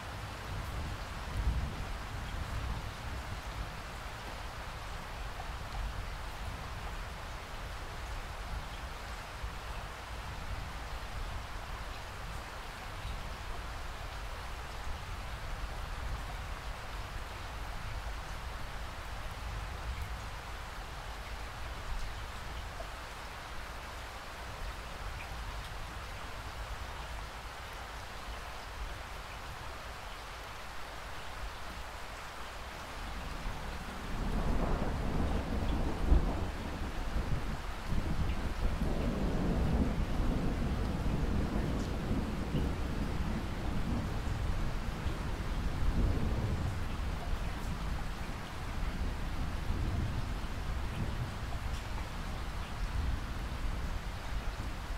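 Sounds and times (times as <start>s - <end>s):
steady rain falling: 0.0s - 54.9s
low roll of thunder: 33.2s - 54.9s.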